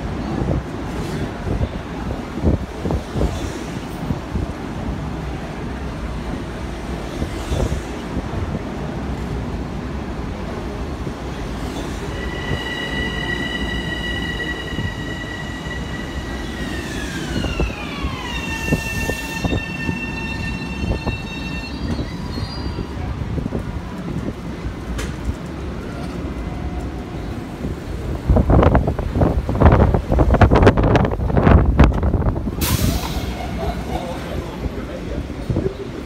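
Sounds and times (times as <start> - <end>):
high electric train whine: 0.0 - 36.0
train wheels rumbling on rails: 0.0 - 36.0.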